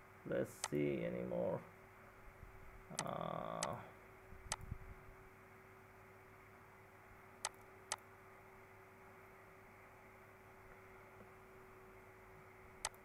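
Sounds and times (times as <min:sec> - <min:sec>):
faint electrical hum: 0:00.0 - 0:13.0
person humming: 0:02.9 - 0:03.9
computer mouse clicks: 0:04.5 - 0:04.7, 0:12.8 - 0:13.0.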